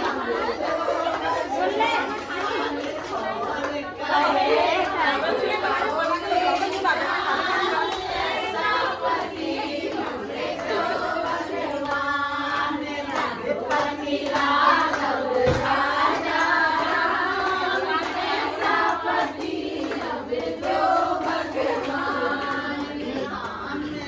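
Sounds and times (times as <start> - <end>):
women singing in chorus: 0.0 - 24.0
hand claps: 6.2 - 24.0.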